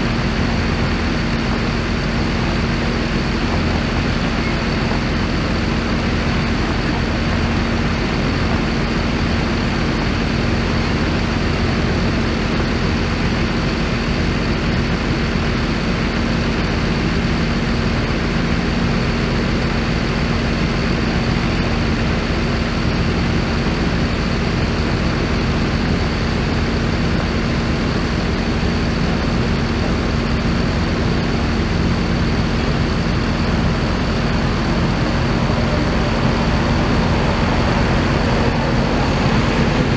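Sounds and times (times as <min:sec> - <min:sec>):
heavy vehicle engine idling: 0:00.0 - 0:39.9
thin high whine: 0:29.0 - 0:39.9.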